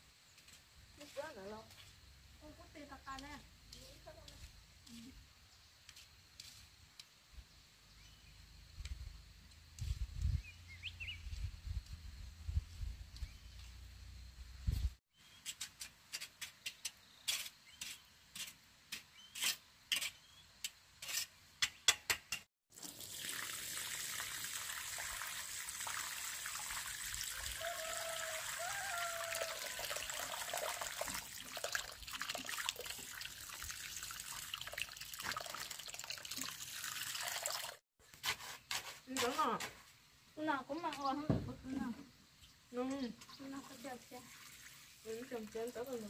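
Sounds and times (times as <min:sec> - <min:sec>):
trowel scraping wet cement: 0:15.3 - 0:22.5, 0:38.0 - 0:39.8
water pouring onto cement mix: 0:22.7 - 0:37.8, 0:43.6 - 0:46.0.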